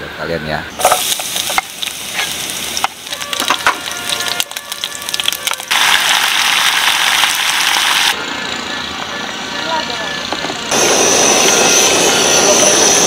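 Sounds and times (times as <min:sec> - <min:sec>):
garlic sizzling in hot oil: 0:00.8 - 0:08.2.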